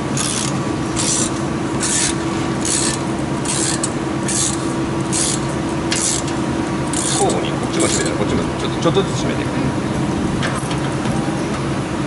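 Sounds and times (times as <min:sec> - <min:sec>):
ratchet wrench clicking: 0:00.2 - 0:07.3.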